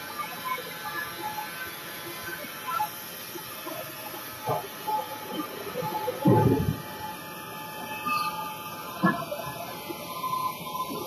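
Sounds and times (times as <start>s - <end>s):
heavy machine rumble: 5.9s - 7.2s.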